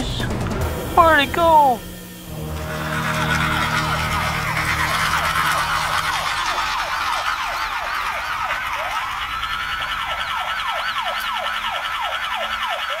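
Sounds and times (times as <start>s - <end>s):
fast electronic warble: 0.0s - 13.0s
steady high tone: 0.0s - 13.0s
toy police siren wailing: 3.3s - 13.0s.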